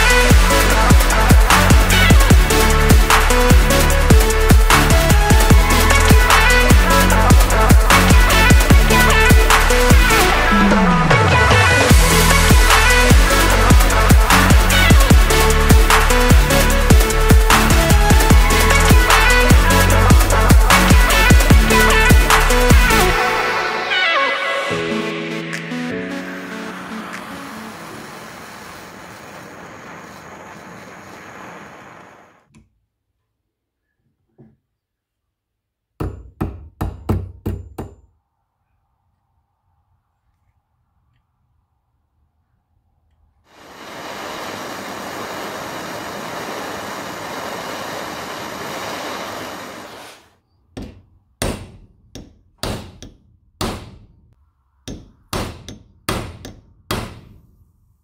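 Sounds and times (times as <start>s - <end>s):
gas torch flame hissing: 26.2s - 32.5s, 43.5s - 50.4s.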